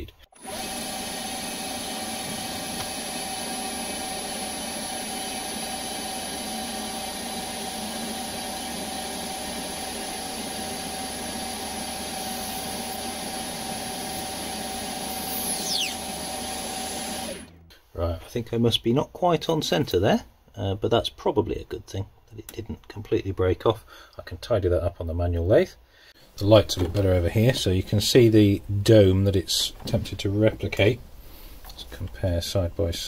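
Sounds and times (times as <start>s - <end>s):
lathe machine whine: 0.4s - 17.6s
high squeal falling in pitch: 15.3s - 16.0s.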